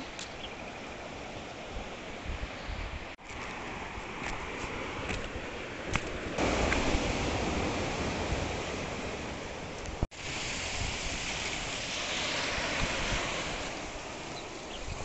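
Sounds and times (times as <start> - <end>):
wind rumbling on microphone: 0.0 - 15.0
footsteps on dirt trail: 3.2 - 6.9
surf washing over rocks: 3.2 - 15.0.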